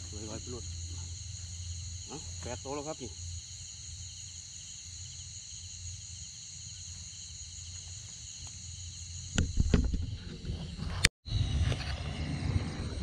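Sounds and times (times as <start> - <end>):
crickets and insects chirring: 0.0 - 13.0
loud thumps and knocks: 9.4 - 10.6.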